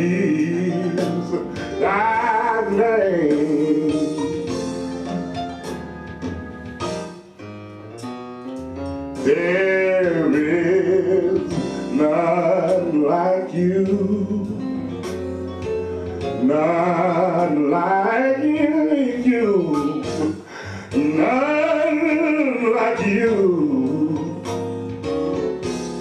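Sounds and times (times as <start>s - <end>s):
man singing: 0.0s - 4.5s, 9.1s - 15.1s, 16.2s - 24.7s
instrumental accompaniment: 0.0s - 26.0s.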